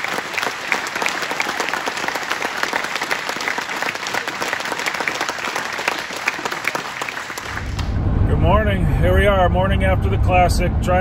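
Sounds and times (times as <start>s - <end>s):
crowd applauding: 0.0s - 7.9s.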